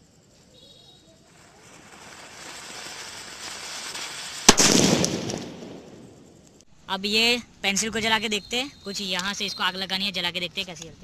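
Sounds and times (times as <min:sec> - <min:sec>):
firework sparks hissing: 0:00.0 - 0:06.7
sharp loud crack: 0:04.4 - 0:06.4.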